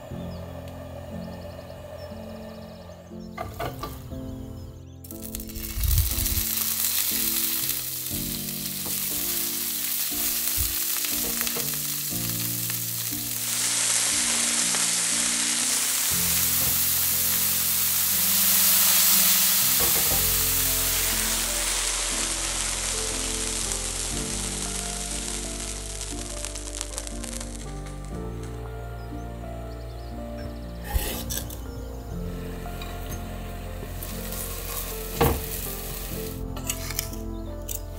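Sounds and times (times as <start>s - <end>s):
fish sizzling in oil: 5.1s - 28.4s, 32.3s - 36.5s.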